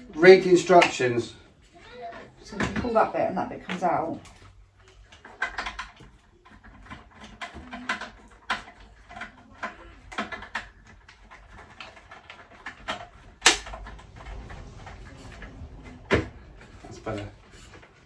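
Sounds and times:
plastic parts clicking and knocking: 0:02.1 - 0:14.8.

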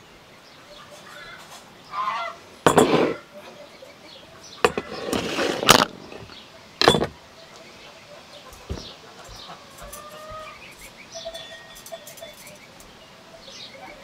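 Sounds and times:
geese honking: 0:00.7 - 0:02.5.

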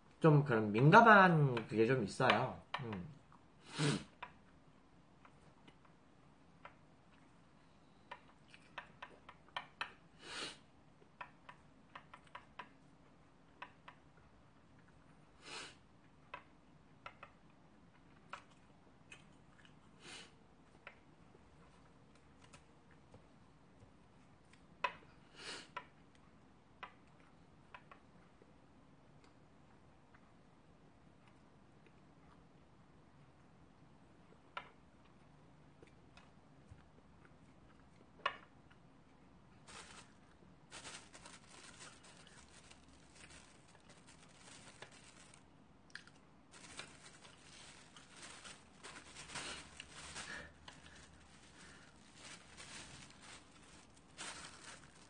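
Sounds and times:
plastic packaging crinkling: 0:39.6 - 0:45.5, 0:46.5 - 0:55.0.

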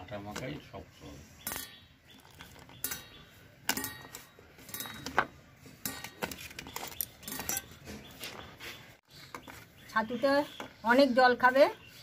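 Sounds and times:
steel bowl clinking and scraping: 0:01.4 - 0:08.1.

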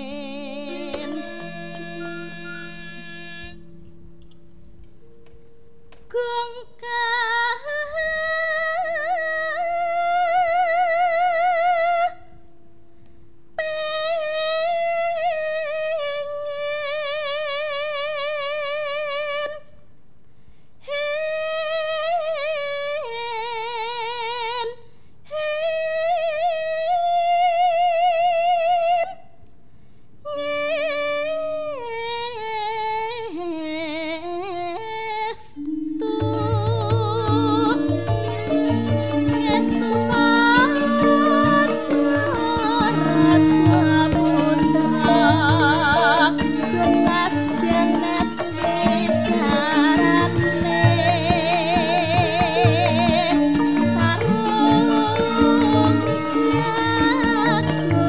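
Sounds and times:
woman singing with vibrato: 0:00.0 - 0:03.7, 0:06.0 - 0:12.4, 0:13.6 - 0:19.7, 0:20.8 - 0:29.2, 0:30.3 - 0:58.0
faint held instrument notes: 0:00.0 - 0:19.8, 0:30.2 - 0:58.0.

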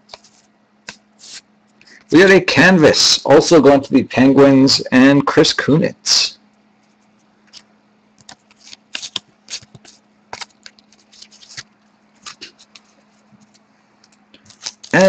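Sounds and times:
cards being handled and sorted: 0:00.0 - 0:02.1, 0:06.8 - 0:15.0.

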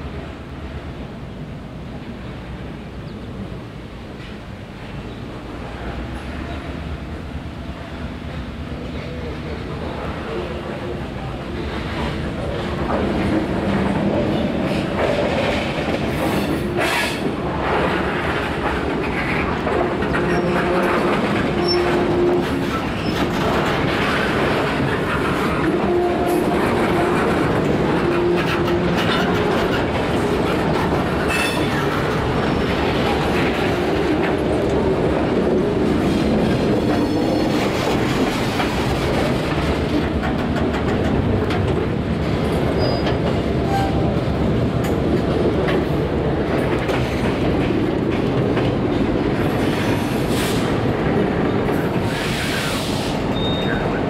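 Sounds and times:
train wheels clicking over rail joints: 0:11.7 - 0:53.8
train wheel squeal: 0:20.1 - 0:23.3, 0:31.2 - 0:32.7, 0:36.8 - 0:37.8, 0:42.7 - 0:44.0, 0:52.0 - 0:54.0.

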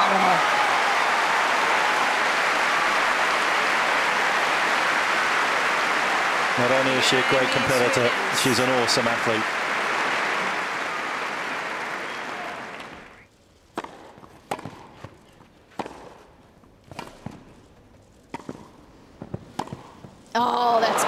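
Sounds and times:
crowd applause: 0:00.0 - 0:13.2, 0:20.6 - 0:21.0
tennis ball bouncing: 0:13.7 - 0:16.2, 0:16.9 - 0:17.5, 0:18.3 - 0:20.1
racket striking tennis ball: 0:13.8 - 0:16.2, 0:16.9 - 0:17.5, 0:18.3 - 0:20.0.

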